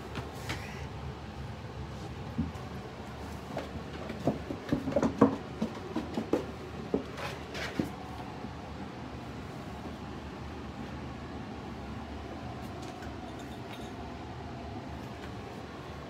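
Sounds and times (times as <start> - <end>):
puppies knocking hard plastic: 3.9 - 7.0.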